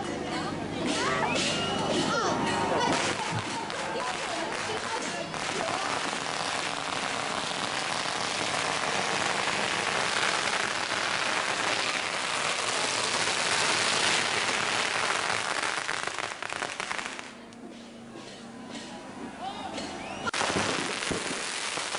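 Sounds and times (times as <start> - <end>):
firecrackers crackling: 2.8 - 17.5, 20.3 - 21.9.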